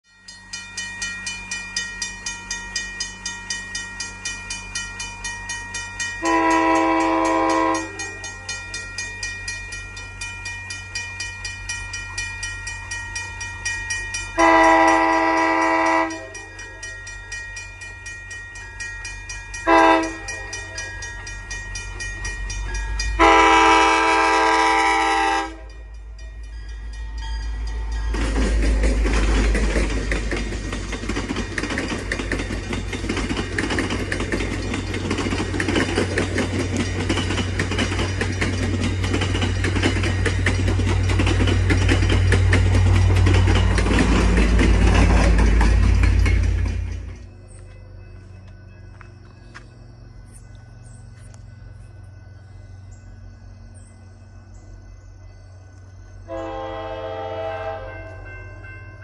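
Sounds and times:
railroad crossing bell dinging: 0:00.0 - 0:59.0
train engine rumble: 0:00.1 - 0:59.0
train horn: 0:06.2 - 0:08.6, 0:14.4 - 0:16.8, 0:19.7 - 0:20.9, 0:23.2 - 0:25.8, 0:56.3 - 0:58.4.

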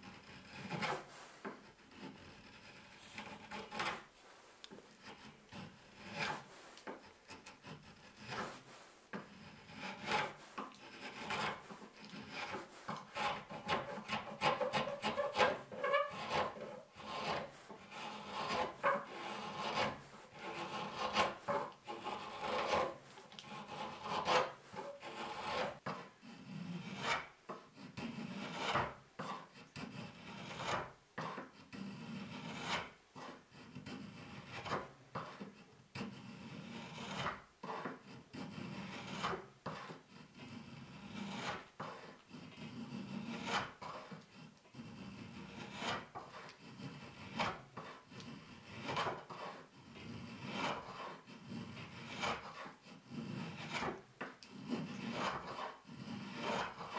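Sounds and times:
spokeshave scraping wood: 0:00.0 - 0:56.9.

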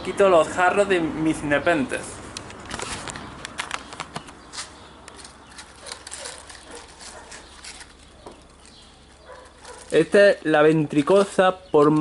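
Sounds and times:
plastic sheeting and leaves rustling: 0:02.7 - 0:12.0.

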